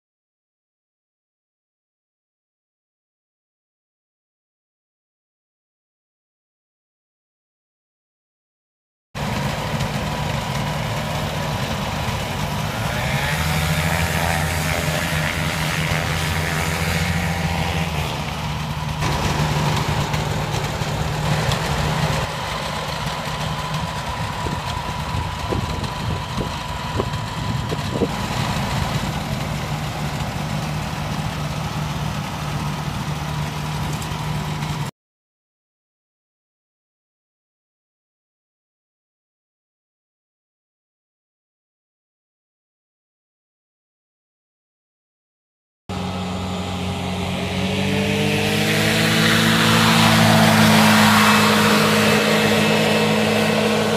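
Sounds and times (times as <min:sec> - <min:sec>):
small engine running: 0:09.2 - 0:34.9, 0:45.9 - 0:53.9.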